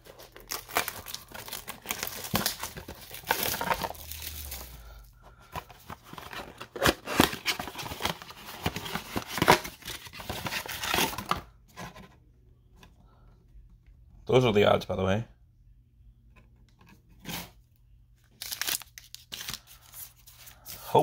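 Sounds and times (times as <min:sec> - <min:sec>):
cardboard and wrappers tearing: 0:00.0 - 0:05.0, 0:05.8 - 0:11.4, 0:18.4 - 0:21.0
plastic wrap crinkling: 0:00.0 - 0:05.0, 0:18.3 - 0:21.0.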